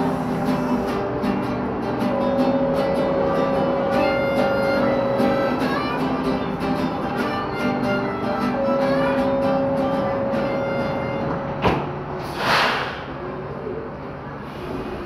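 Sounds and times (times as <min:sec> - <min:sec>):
high sustained note: 0:00.0 - 0:12.2
low sustained notes: 0:00.0 - 0:12.2
pulse of short notes: 0:00.0 - 0:12.2.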